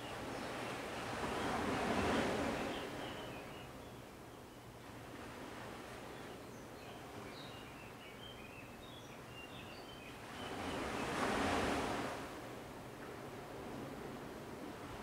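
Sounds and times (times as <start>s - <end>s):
sea surf washing: 10.5s - 12.7s.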